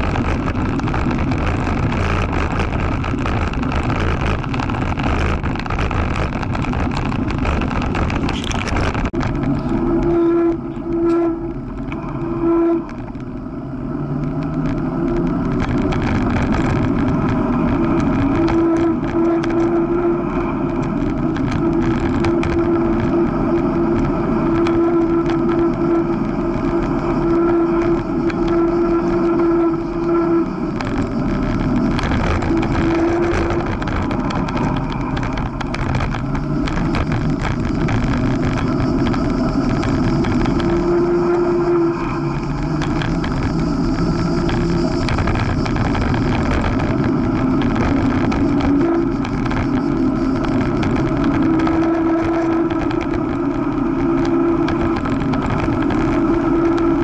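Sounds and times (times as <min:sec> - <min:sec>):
tyre and wind rumble: 0:00.0 - 0:57.0.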